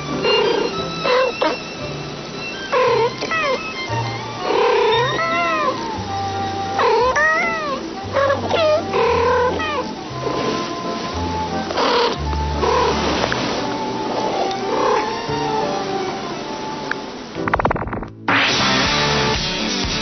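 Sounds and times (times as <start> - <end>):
cats meowing: 0.0 - 1.9, 2.5 - 10.7, 11.4 - 13.0, 14.0 - 16.2
background music with bass: 17.4 - 20.0.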